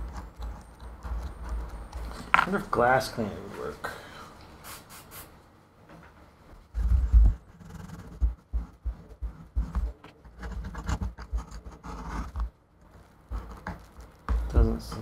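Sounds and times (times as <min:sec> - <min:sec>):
fingers scraping and rubbing: 0:00.0 - 0:02.5, 0:06.6 - 0:15.0.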